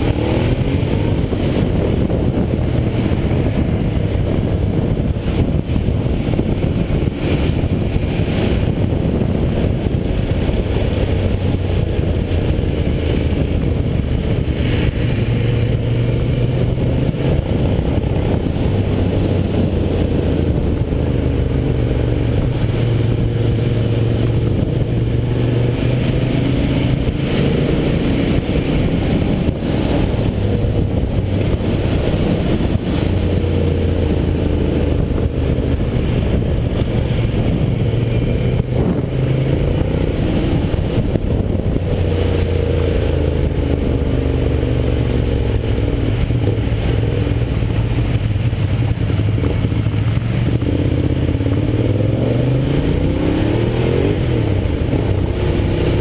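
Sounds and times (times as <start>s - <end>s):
motorcycle engine revving: 0.0s - 56.0s
road and wind noise: 0.0s - 56.0s.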